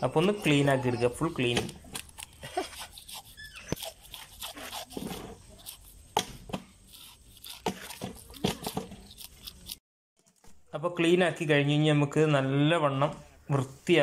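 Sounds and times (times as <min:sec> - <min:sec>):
knife scraping fish scales: 0:01.6 - 0:06.1, 0:06.7 - 0:09.8.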